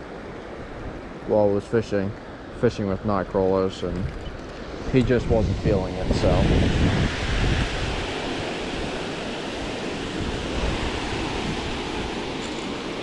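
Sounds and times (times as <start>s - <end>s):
water rushing over dam spillway: 4.8s - 13.0s.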